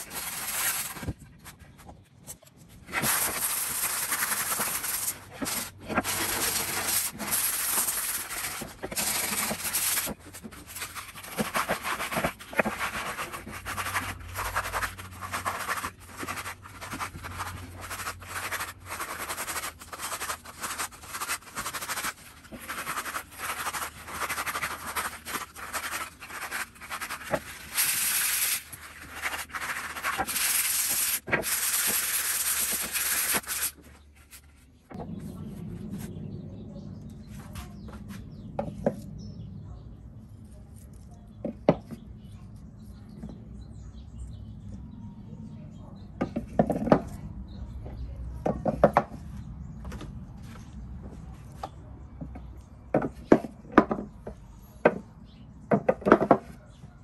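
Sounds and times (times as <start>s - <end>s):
sandpaper scraping wood: 0.0s - 1.2s, 2.8s - 34.4s
low hum: 34.5s - 41.3s.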